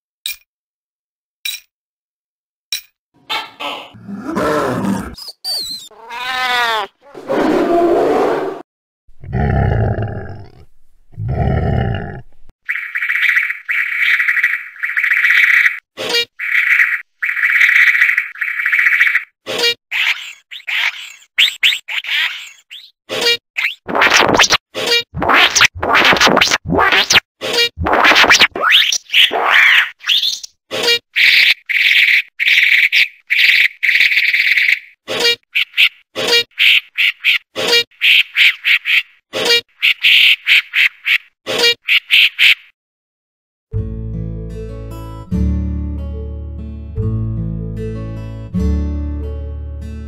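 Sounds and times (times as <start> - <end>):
synthesized quack-like calls: 3.2 - 4.0, 35.1 - 42.8
wavering animal cry: 3.3 - 8.6
animal roars: 4.0 - 5.2, 7.0 - 8.6, 9.2 - 12.4.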